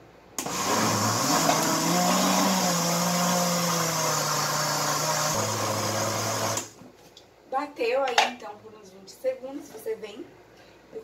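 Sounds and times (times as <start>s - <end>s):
blender motor running: 0.4s - 6.7s.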